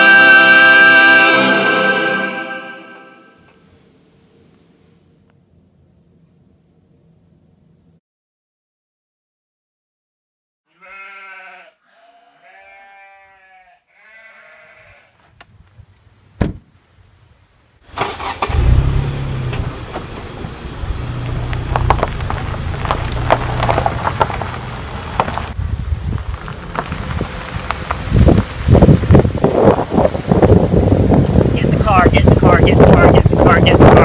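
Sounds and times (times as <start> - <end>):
animal bleating: 10.7 - 15.2
wind buffeting microphone: 25.2 - 34.0.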